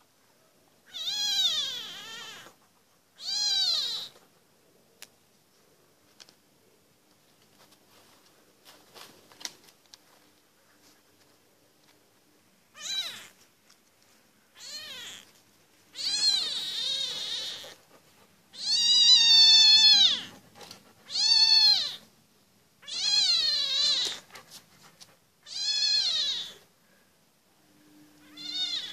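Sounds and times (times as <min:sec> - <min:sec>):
kitten mewing: 0:00.9 - 0:02.6, 0:03.2 - 0:04.2, 0:12.8 - 0:13.4, 0:14.6 - 0:15.3, 0:15.9 - 0:17.9, 0:18.5 - 0:20.4, 0:21.1 - 0:22.0, 0:22.8 - 0:24.4, 0:25.4 - 0:26.6, 0:28.2 - 0:28.9.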